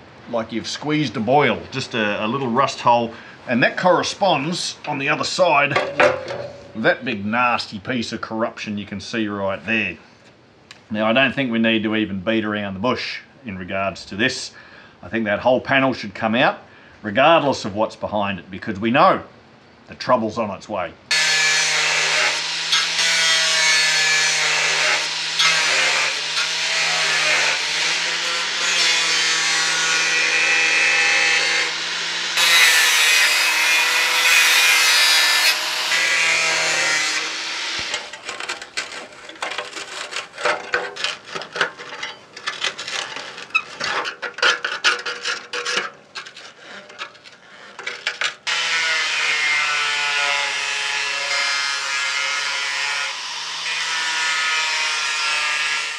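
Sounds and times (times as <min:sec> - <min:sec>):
angle grinder cutting steel: 0:21.1 - 0:40.5, 0:48.4 - 0:55.9
rough uneven rasping: 0:22.0 - 0:48.4.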